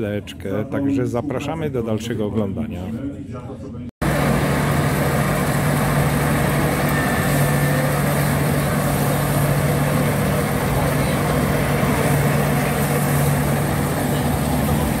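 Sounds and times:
threshing machine running: 4.0s - 15.0s.

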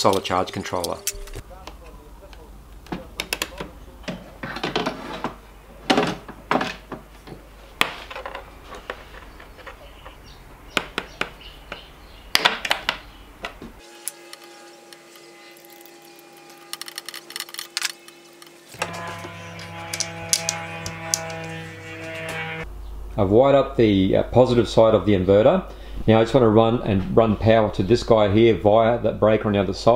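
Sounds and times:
quiet background music: 0.0s - 4.5s
low hum: 0.4s - 4.0s, 13.8s - 23.2s
tools clicking on terminals: 19.6s - 21.5s.

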